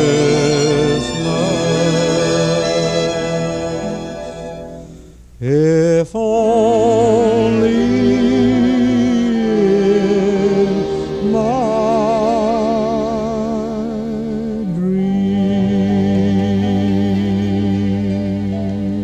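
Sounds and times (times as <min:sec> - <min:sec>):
slow music with held notes: 0:00.0 - 0:05.9, 0:06.7 - 0:19.0.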